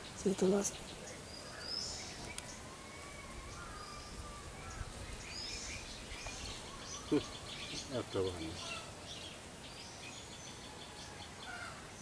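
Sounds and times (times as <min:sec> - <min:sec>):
faint bird chirps: 0:00.0 - 0:12.0
steady background hiss: 0:00.0 - 0:12.0.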